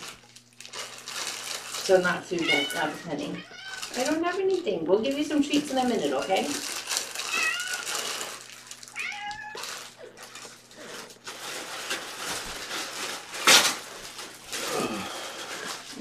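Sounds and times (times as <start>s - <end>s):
cat meowing: 2.4s - 4.0s, 7.2s - 7.9s, 8.9s - 9.7s.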